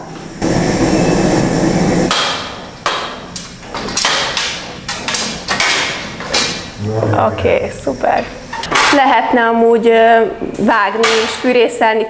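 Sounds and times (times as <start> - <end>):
blowtorch hissing: 0.1 - 8.8.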